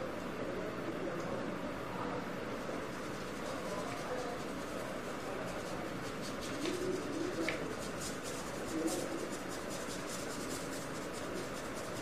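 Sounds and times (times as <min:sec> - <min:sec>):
paintbrush scratching on paper: 0:02.8 - 0:12.0.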